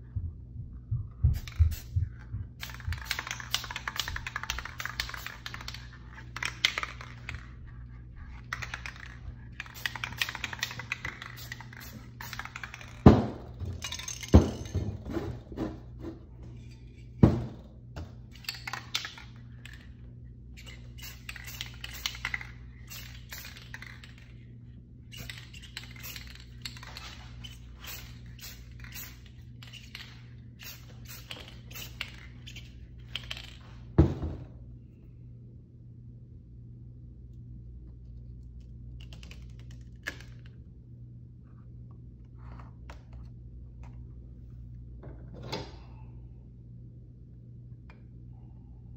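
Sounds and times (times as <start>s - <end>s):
steady low hum: 0.0s - 48.9s
spray cans clicking and clattering: 2.6s - 7.5s, 8.4s - 15.8s, 16.5s - 19.9s, 20.6s - 24.3s, 25.1s - 33.8s.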